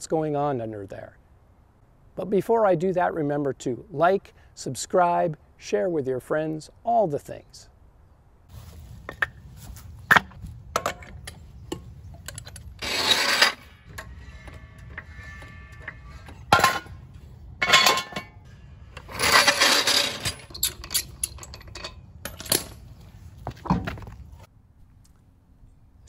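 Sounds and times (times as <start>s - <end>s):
tools knocking and clanking: 9.1s - 9.4s, 10.1s - 22.9s
scraping rattle: 10.8s - 22.9s.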